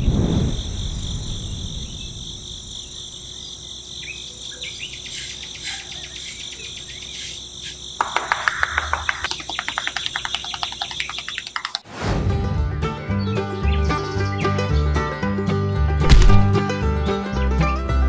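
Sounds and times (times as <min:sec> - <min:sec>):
low rumble: 0:00.0 - 0:03.3
chorus of chirping insects: 0:00.0 - 0:11.8.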